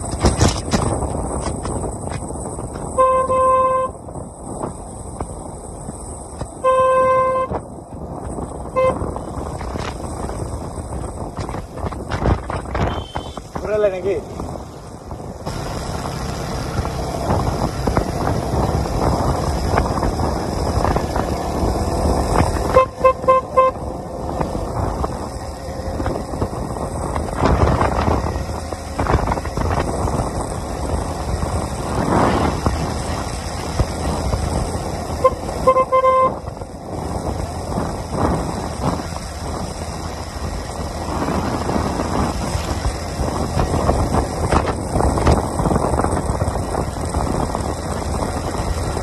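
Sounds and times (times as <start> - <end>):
motorcycle engine: 0.0 - 49.0
wind rushing over microphone: 0.0 - 49.0
horn beeps: 2.9 - 4.0, 6.6 - 7.6, 12.8 - 13.5, 22.7 - 23.9, 35.2 - 36.4.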